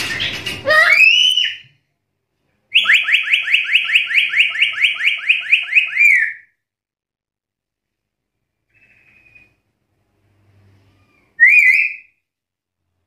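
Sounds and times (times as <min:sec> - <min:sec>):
parrot whistling upward notes: 0:00.6 - 0:01.6, 0:11.4 - 0:12.2.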